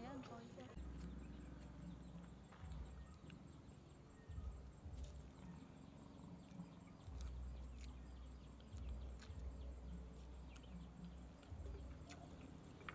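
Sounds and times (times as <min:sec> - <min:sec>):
chopsticks clicking against bowl: 0:10.5 - 0:12.9.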